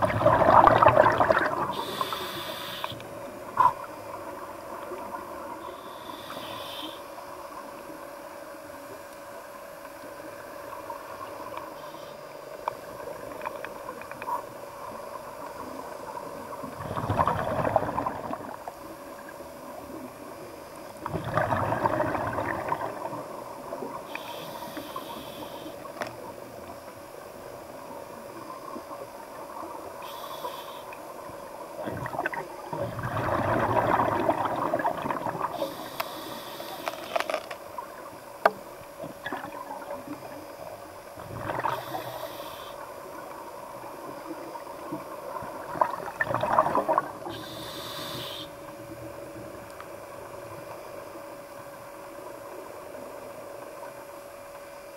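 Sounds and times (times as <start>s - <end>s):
gurgling exhaled bubbles: 0.0s - 2.2s, 16.5s - 20.0s, 21.0s - 24.1s, 31.8s - 35.8s, 39.1s - 40.6s, 41.2s - 42.1s, 44.2s - 47.6s
faint steady hum: 0.0s - 54.9s
regulator hiss on inhale: 1.7s - 3.6s, 5.6s - 7.3s, 11.6s - 12.6s, 23.9s - 26.3s, 30.0s - 31.2s, 35.4s - 37.6s, 41.6s - 43.1s, 47.2s - 48.8s.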